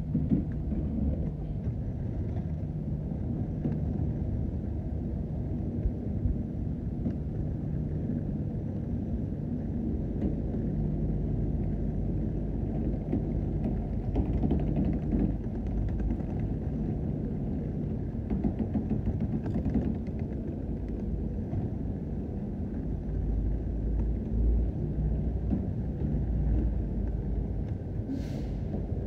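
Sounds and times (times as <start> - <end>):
low vehicle rumble: 0.0 - 29.0
brief hiss: 28.1 - 28.7.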